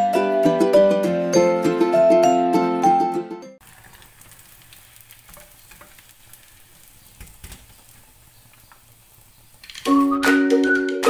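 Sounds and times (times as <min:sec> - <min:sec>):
chicken deep-frying in oil: 0:03.6 - 0:10.2.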